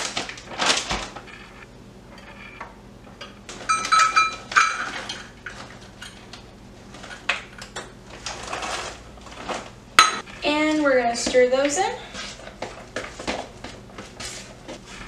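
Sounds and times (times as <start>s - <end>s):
plastic bag crinkling: 0.0s - 1.3s, 8.1s - 9.8s.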